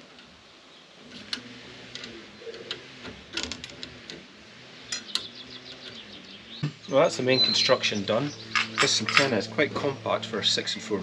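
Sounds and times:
metallic clicks of bolts fitted: 8.5s - 9.4s.

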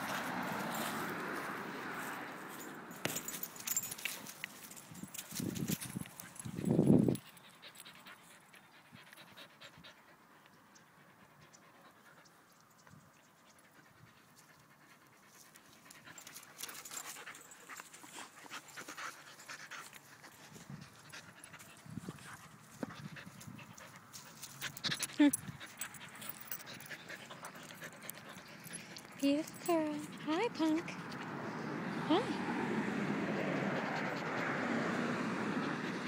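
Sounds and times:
dog panting: 6.2s - 31.9s, 33.0s - 36.0s.

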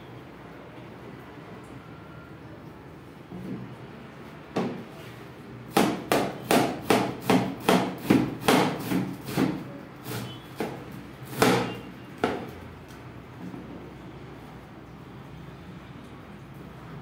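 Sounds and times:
knife chopping cabbage on board: 5.7s - 12.6s.

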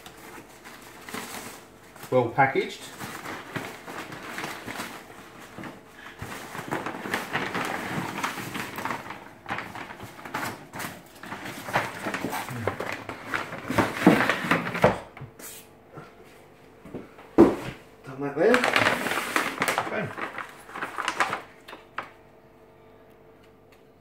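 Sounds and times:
rummaging through packing materials: 0.0s - 15.1s, 18.4s - 22.1s.

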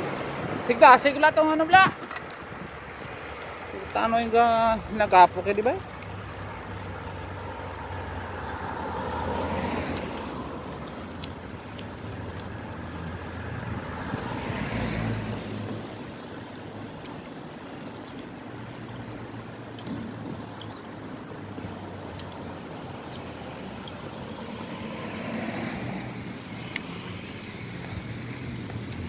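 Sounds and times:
wind rushing over microphone: 0.0s - 5.2s, 8.0s - 17.9s
road noise: 0.0s - 29.0s.

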